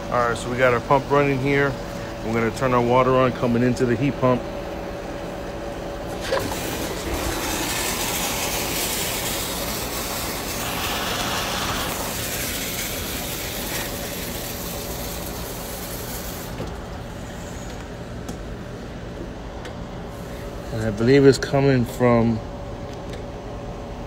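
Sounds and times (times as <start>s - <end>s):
pool pump humming: 0.0s - 22.4s
water spraying and hissing: 6.1s - 16.6s.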